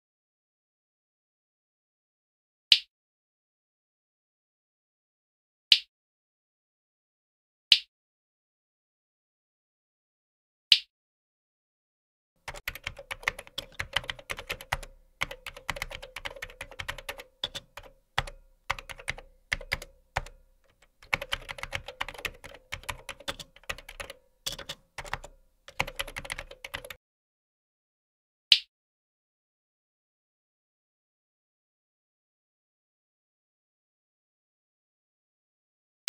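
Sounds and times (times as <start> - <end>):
typing on computer keyboard: 12.4 - 27.0.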